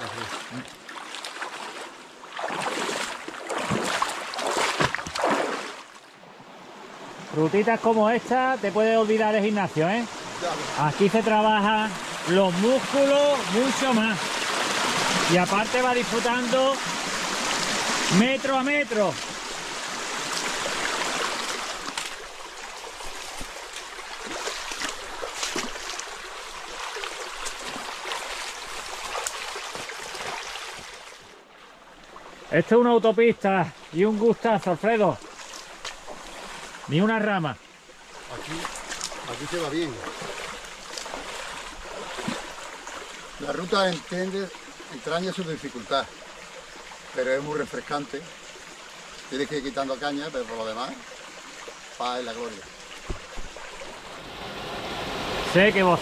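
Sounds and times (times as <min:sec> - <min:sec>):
water splashing from wading: 0:00.0 - 0:07.4, 0:09.3 - 0:32.6, 0:34.8 - 0:37.0, 0:37.6 - 0:56.0
river flowing over stones: 0:00.0 - 0:56.0.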